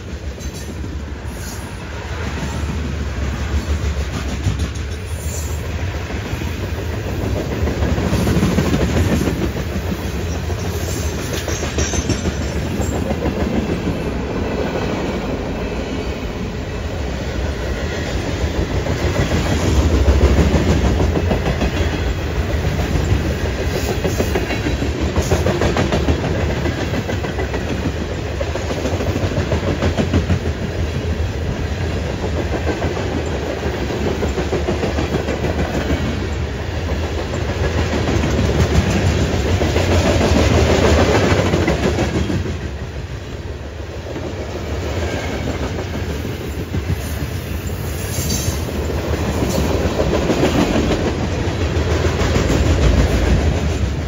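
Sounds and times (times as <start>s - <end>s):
train wheels clattering over rail joints: 2.6s - 14.8s, 17.8s - 42.7s.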